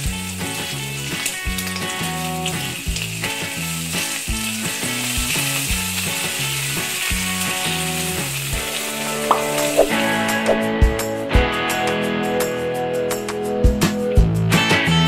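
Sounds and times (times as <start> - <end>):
prawns sizzling in hot oil: 0.0 - 10.4
background music with bass line: 0.0 - 15.0.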